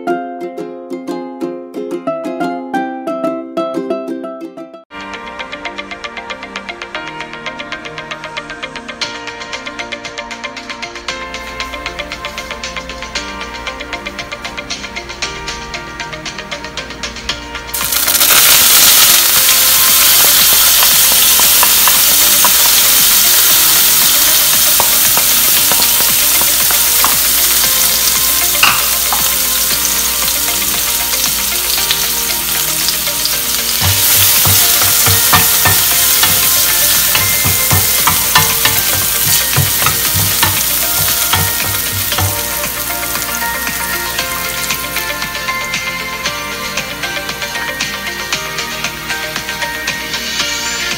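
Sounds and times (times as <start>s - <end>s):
garlic sizzling in hot oil: 17.7s - 45.7s
wooden spatula stirring: 33.7s - 42.8s.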